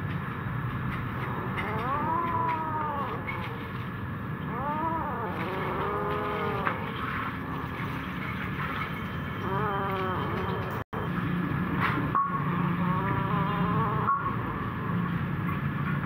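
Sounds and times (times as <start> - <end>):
cat meowing: 1.2 - 3.8, 4.4 - 7.2, 9.4 - 10.8, 12.8 - 14.4.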